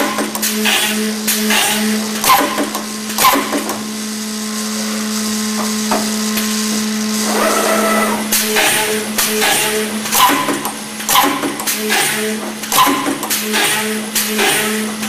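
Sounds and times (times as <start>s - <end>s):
machine motor hum: 0.0s - 15.0s
high whirring: 7.2s - 8.4s.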